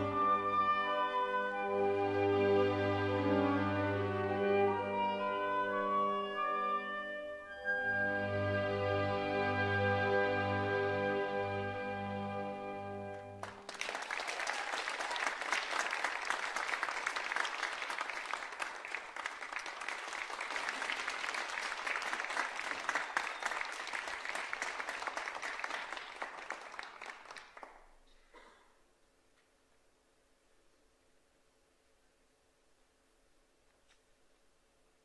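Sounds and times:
music: 0.0s - 13.9s
audience applause: 13.4s - 27.9s.

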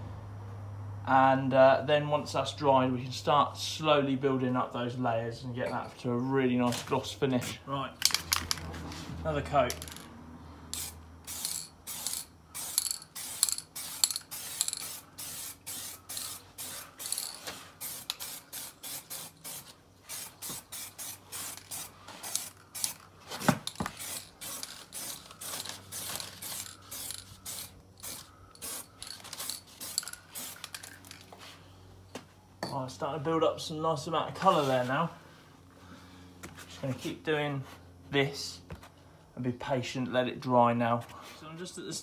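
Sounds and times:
spray can hissing: 10.7s - 23.0s, 23.6s - 31.3s.

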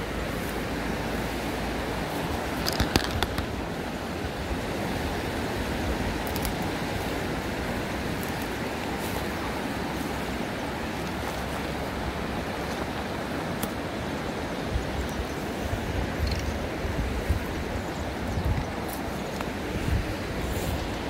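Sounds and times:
river water rushing over stones: 0.0s - 21.0s
faint clicks: 2.5s - 3.6s.

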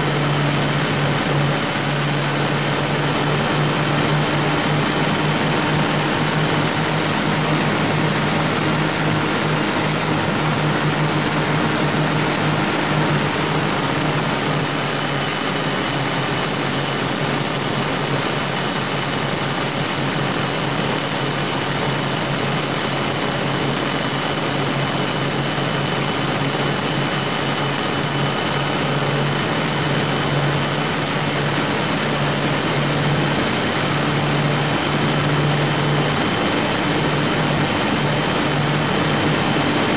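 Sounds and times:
low hum: 0.0s - 19.6s, 20.4s - 39.9s
boat diesel engines droning: 21.5s - 39.9s.

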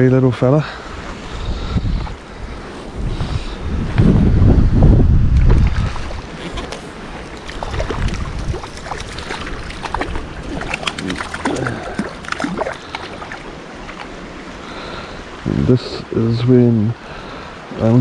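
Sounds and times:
wind rumble on microphone: 0.9s - 13.2s
river hiss: 5.9s - 18.0s
fish splashing at water surface: 7.1s - 14.1s.

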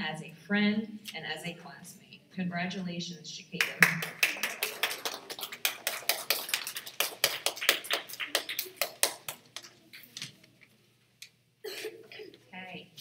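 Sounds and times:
audience clapping: 3.6s - 9.8s.

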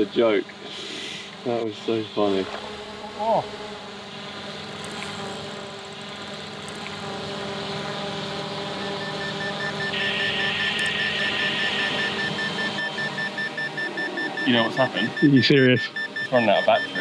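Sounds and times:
drone propellers whining: 0.0s - 17.0s
rapid beeping: 8.7s - 17.0s.

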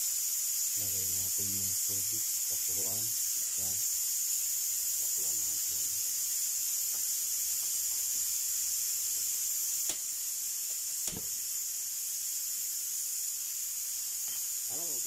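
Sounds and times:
high-pitched hiss: 0.0s - 15.0s.

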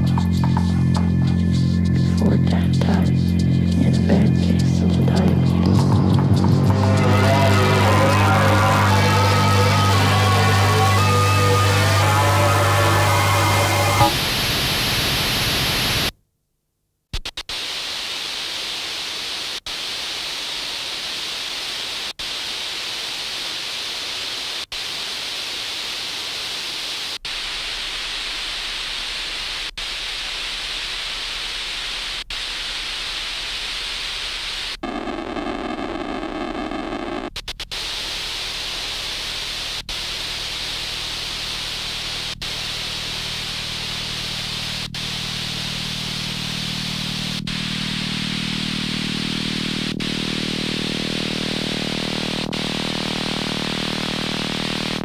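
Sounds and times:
low hum: 0.0s - 14.8s
buzzing drone: 0.0s - 16.1s
static hiss: 0.0s - 16.2s, 17.2s - 55.0s.

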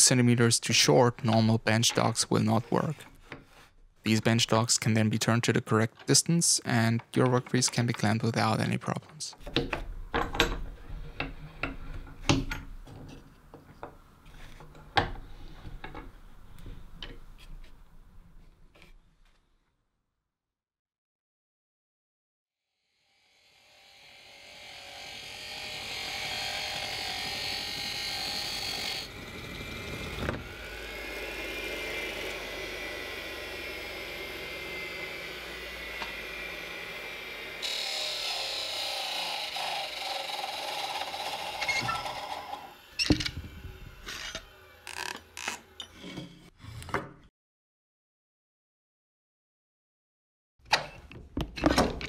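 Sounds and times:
lathe motor running: 23.6s - 45.8s.

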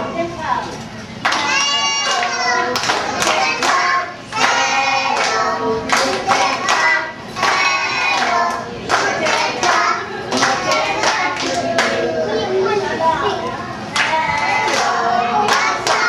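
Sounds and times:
hand claps: 1.2s - 12.0s
children singing: 1.3s - 12.7s, 13.9s - 16.0s.

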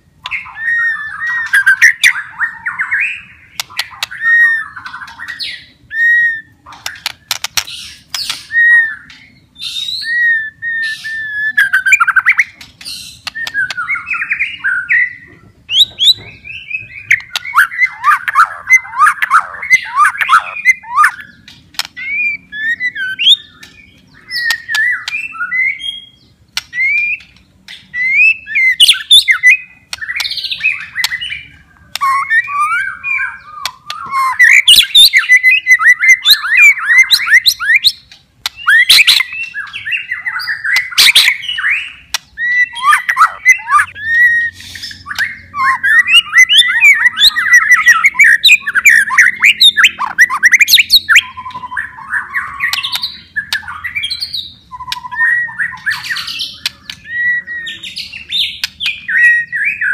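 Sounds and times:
songbird whistling and trilling: 0.2s - 59.9s.

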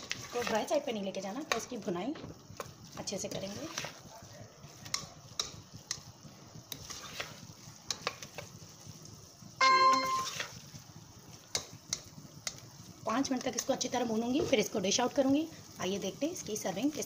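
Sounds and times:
spoon scraping a pot: 0.0s - 0.7s, 10.0s - 10.6s
meat sizzling: 0.0s - 17.0s
loud ringing tone: 9.6s - 10.5s.

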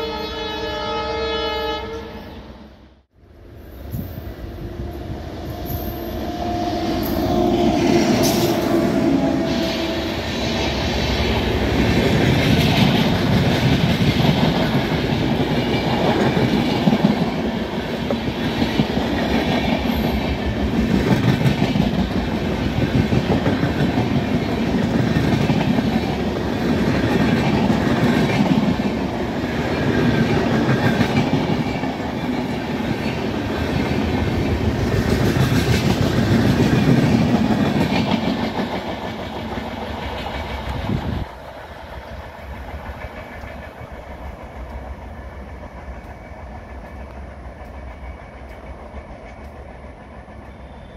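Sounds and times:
train passing rumble: 0.0s - 50.9s
wheels clickety-clack over rail joints: 10.6s - 50.9s.

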